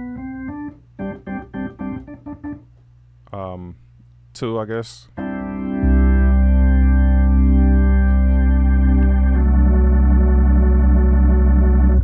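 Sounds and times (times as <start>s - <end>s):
organ sustained chord: 0.0s - 2.6s, 5.2s - 12.0s
low organ bass-pedal note: 5.2s - 12.0s.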